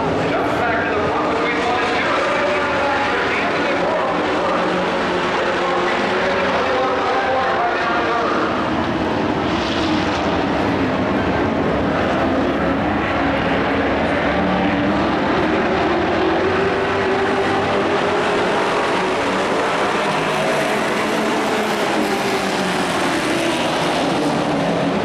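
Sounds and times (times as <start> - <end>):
race truck engines droning: 0.0 - 25.0.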